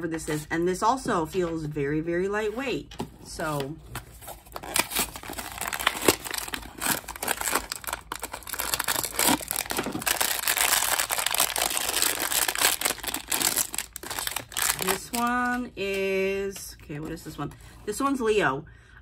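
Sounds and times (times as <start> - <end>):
cardboard box being opened: 3.8 - 12.0
foil bag crinkling and tearing: 4.2 - 15.7.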